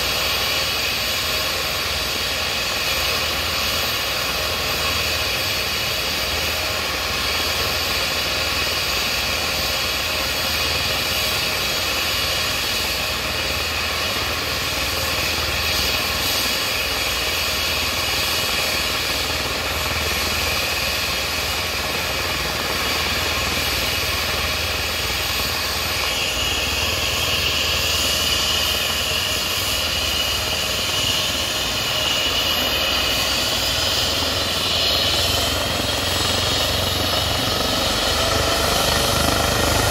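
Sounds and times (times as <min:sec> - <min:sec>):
helicopter turbine whine: 0:00.0 - 0:39.9
higher-pitched whine: 0:00.0 - 0:39.9.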